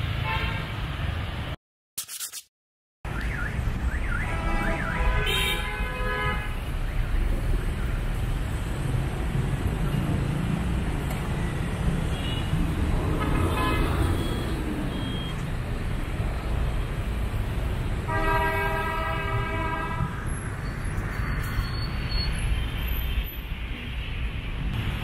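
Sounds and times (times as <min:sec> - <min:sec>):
city street traffic: 0:00.0 - 0:25.0
vehicle horn honking: 0:04.3 - 0:06.5, 0:18.1 - 0:20.0.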